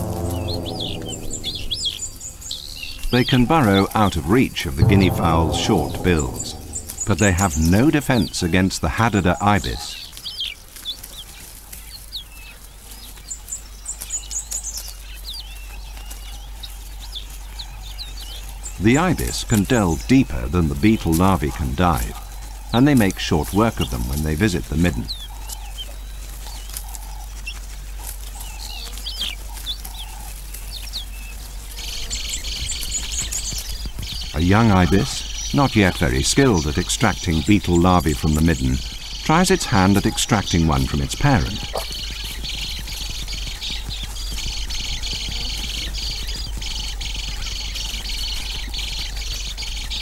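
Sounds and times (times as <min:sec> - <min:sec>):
steady low hum: 0:00.0 - 0:09.8, 0:18.4 - 0:50.0
soft low clucking calls: 0:33.0 - 0:50.0.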